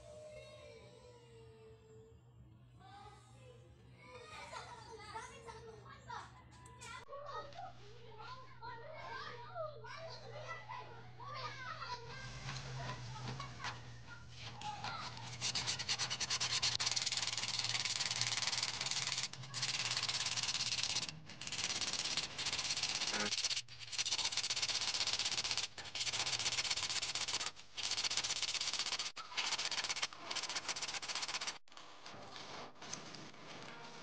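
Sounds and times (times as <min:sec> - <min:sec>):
sandpaper rasping on metal: 0:15.0 - 0:31.6.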